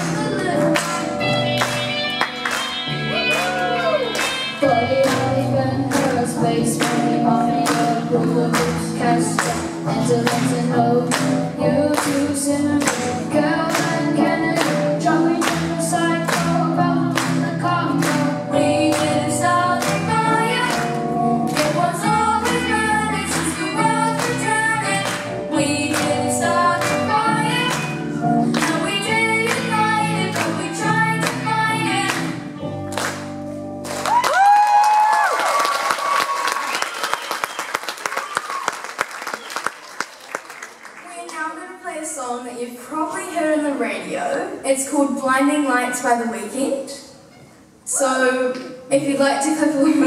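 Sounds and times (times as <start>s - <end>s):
live rock band playing: 0.0s - 6.3s, 13.0s - 34.0s.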